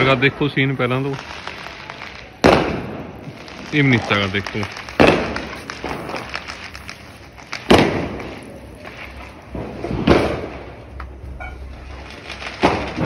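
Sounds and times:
firecrackers banging: 0:00.0 - 0:13.0.

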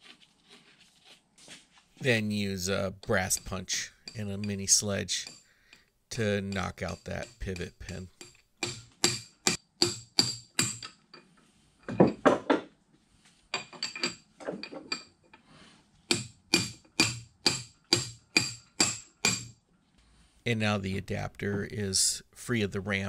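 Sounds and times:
hammer striking metal punch: 0:06.5 - 0:10.9, 0:16.1 - 0:19.5.

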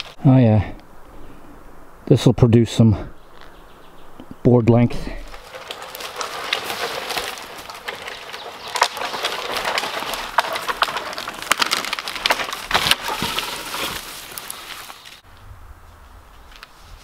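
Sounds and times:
dry wood crackling and snapping: 0:00.0 - 0:00.2, 0:05.0 - 0:15.2
brush crunching: 0:00.0 - 0:00.4, 0:03.2 - 0:17.0.

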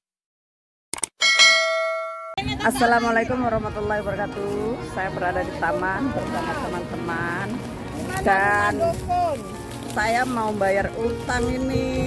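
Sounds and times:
bright bell ding: 0:01.2 - 0:02.4.

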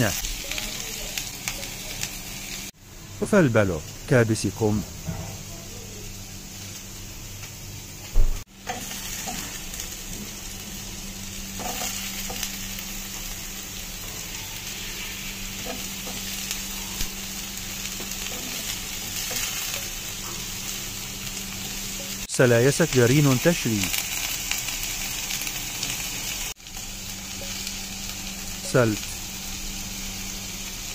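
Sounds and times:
vegetables sizzling in a wok: 0:00.0 - 0:30.9
steady low hum: 0:01.1 - 0:22.3
metal spatula scraping: 0:11.5 - 0:12.5.

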